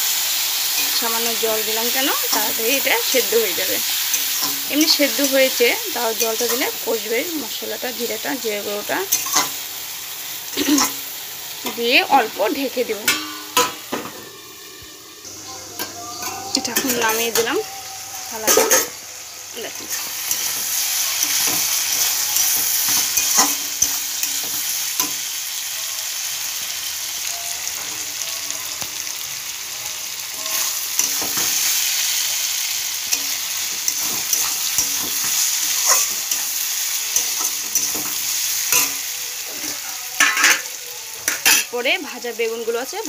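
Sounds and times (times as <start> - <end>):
potato strips sizzling in a wok: 0.0 - 43.0
spatula scraping a pan: 13.0 - 19.1, 19.7 - 25.2, 33.0 - 41.7.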